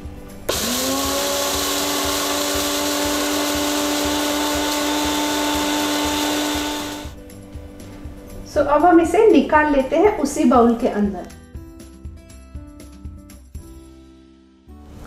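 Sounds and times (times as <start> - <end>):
blender motor grinding: 0.5 - 7.2.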